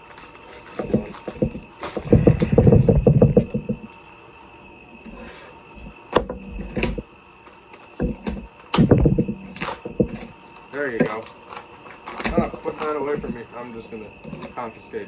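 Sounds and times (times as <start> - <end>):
items knocking on table: 0.8 - 3.9, 8.0 - 10.3
plastic packaging crinkling: 10.5 - 13.2.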